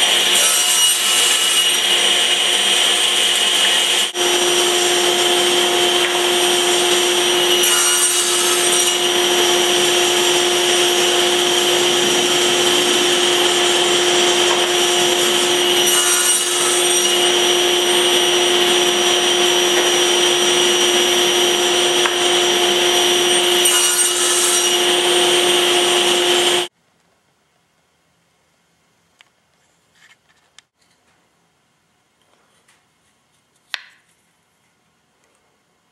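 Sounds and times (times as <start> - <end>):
saw cutting through wood: 0.0 - 26.7
table saw whining: 0.0 - 26.7.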